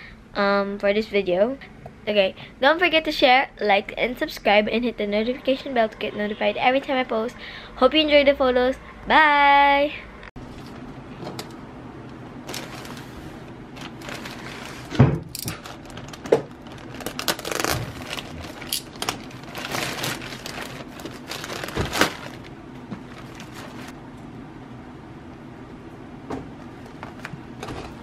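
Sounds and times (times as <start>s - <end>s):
plastic bag crinkling and tearing: 12.4s - 24.0s.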